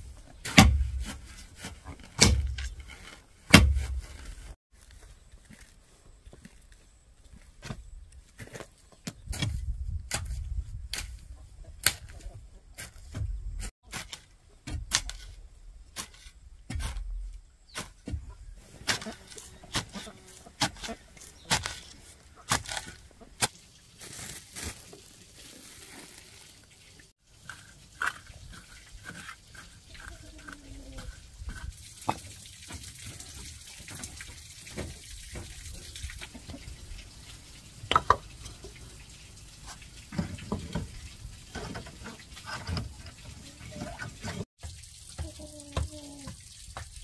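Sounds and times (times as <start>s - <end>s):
hoe chopping dry soil: 0.4s - 4.3s, 11.8s - 23.6s
clay bricks knocking together: 37.9s - 38.2s.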